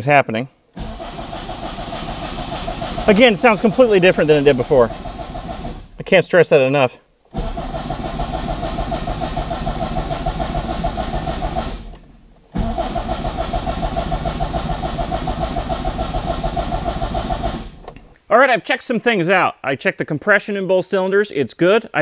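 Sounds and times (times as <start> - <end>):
engine starter cranking: 0.7 - 6.0, 7.3 - 18.1.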